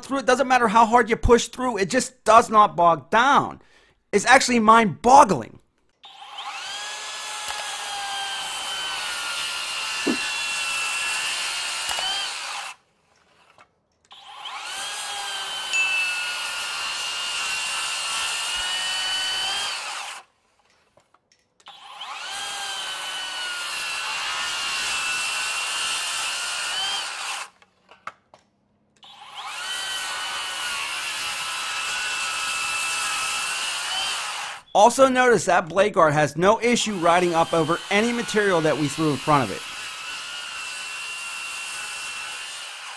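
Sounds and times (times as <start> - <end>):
circular saw whining through wood: 6.0 - 20.8, 21.6 - 27.7, 29.0 - 35.2, 36.5 - 42.9.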